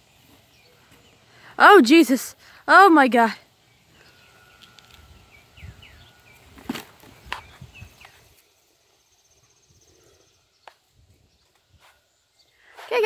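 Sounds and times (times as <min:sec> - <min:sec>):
faint insect trill: 0:07.5 - 0:10.7.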